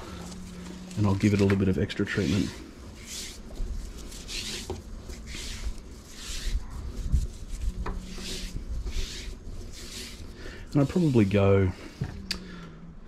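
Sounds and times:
rope hissing strokes: 2.1s - 12.0s.

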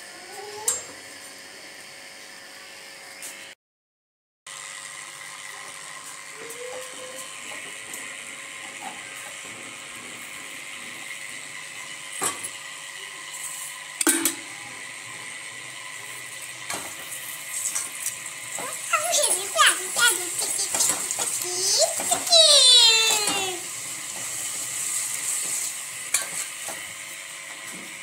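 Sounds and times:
mechanical whirring hum: 0.0s - 3.6s, 4.5s - 28.0s.

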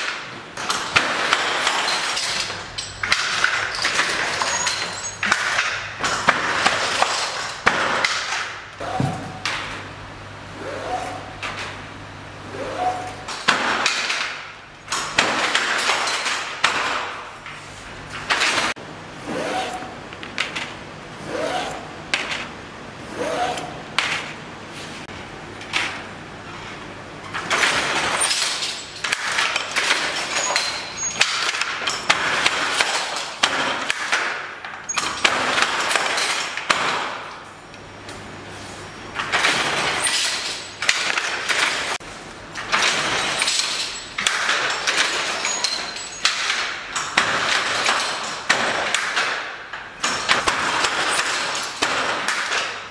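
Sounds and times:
hand loom knocking and clattering: 0.0s - 9.8s, 12.8s - 17.4s, 27.3s - 37.5s, 42.6s - 52.9s
loom creaking: 0.0s - 9.8s, 23.1s - 37.4s, 42.6s - 52.8s.

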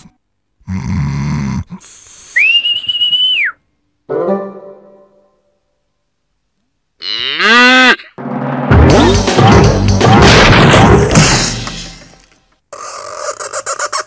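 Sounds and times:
cartoon snoring with whistle: 0.6s - 1.8s.

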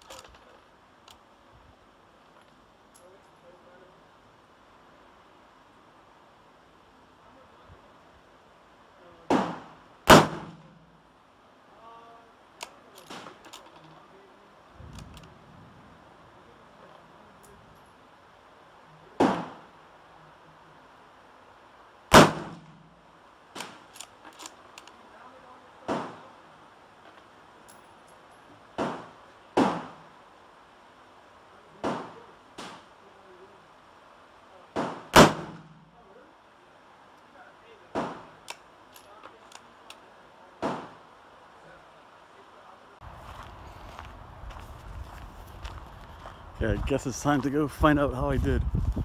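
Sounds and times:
rifle shot with echo: 9.3s - 10.9s, 19.2s - 19.7s, 22.1s - 22.9s, 34.8s - 35.8s.

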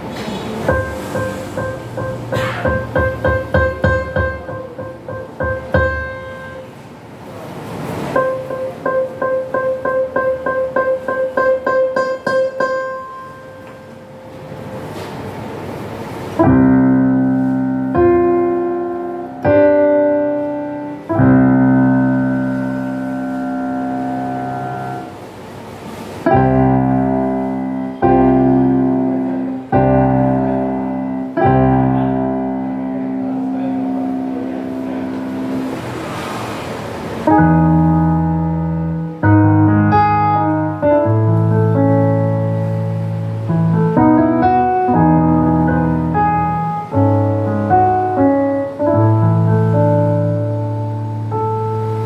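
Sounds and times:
piano chords ringing: 0.0s - 52.0s
bass notes under melody: 0.7s - 6.7s, 16.4s - 25.2s, 26.3s - 35.8s, 37.3s - 52.0s.

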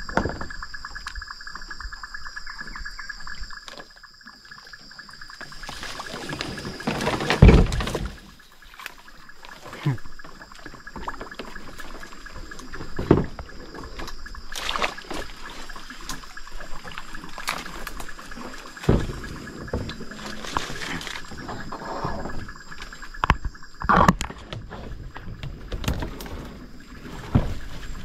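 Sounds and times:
paddle splashing in water: 5.4s - 23.2s, 23.9s - 28.0s
paddle knocks: 6.1s - 8.4s.

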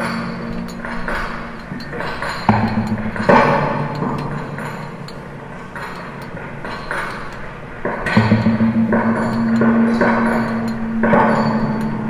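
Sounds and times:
sharp percussion hits: 0.0s - 12.0s
low ringing tone: 8.1s - 12.0s.

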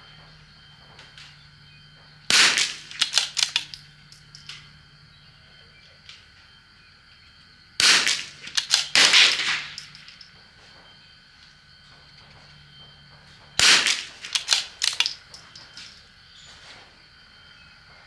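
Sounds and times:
rifle shots: 2.3s - 3.8s, 7.8s - 10.2s, 13.6s - 15.3s
sharp cracks: 2.3s - 4.6s, 7.8s - 10.3s, 13.6s - 15.9s.

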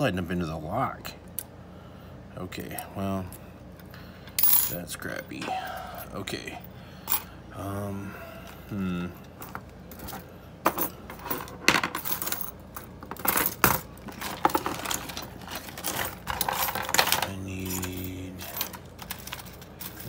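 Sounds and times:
metal tools clinking on wood: 9.4s - 20.0s.

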